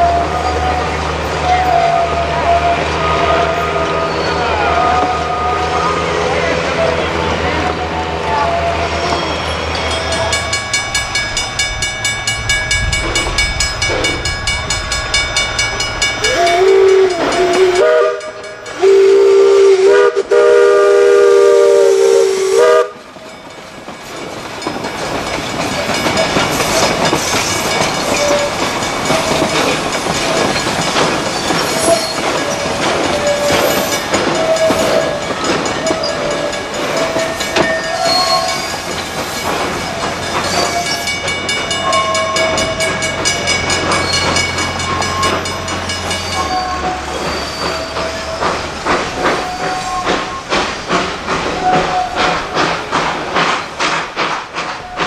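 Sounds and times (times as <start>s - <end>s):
multi-tone train whistle: 0.0s - 10.3s, 16.2s - 23.1s, 31.6s - 38.8s, 41.8s - 43.1s, 46.2s - 50.6s, 51.5s - 52.6s
train running rumble: 0.0s - 55.0s.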